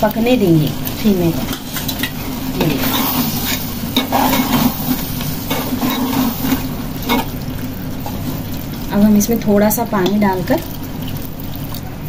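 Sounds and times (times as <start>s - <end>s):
food sizzling: 0.0s - 12.0s
steady low hum: 0.0s - 12.0s
metal spoon scraping pot: 1.5s - 7.3s.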